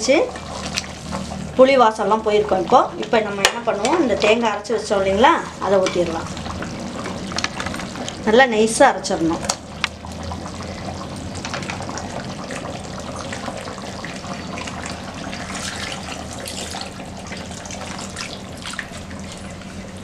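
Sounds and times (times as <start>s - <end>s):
liquid pouring and splashing: 9.5s - 20.0s.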